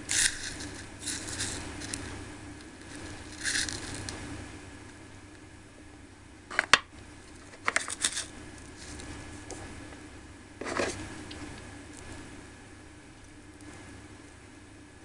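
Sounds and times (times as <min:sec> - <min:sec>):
scraping rustle: 0:00.0 - 0:04.2, 0:07.4 - 0:09.7, 0:10.6 - 0:11.1.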